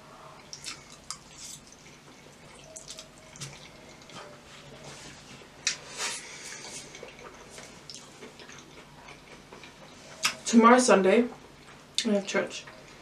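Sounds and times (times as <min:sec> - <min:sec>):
wet chewing and slurping: 0:00.4 - 0:04.8, 0:05.6 - 0:10.4.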